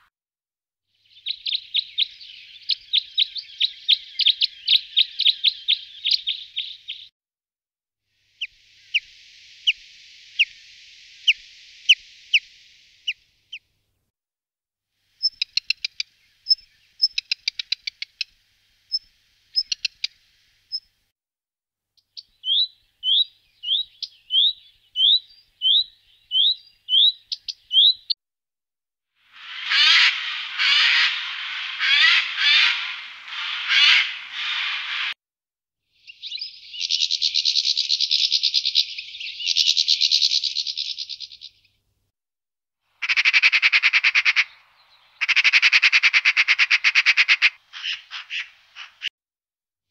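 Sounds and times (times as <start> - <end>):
short rising bird calls: 29.3 - 35.2
harsh scratchy bird chattering: 29.4 - 35.1, 43.0 - 44.5.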